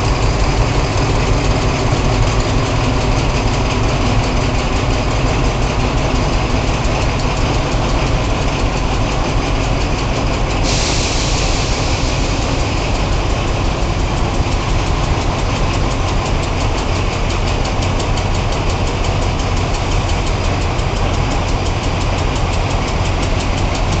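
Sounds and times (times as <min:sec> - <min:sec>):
diesel locomotive idling: 0:00.0 - 0:24.0
loud hiss: 0:10.4 - 0:16.3.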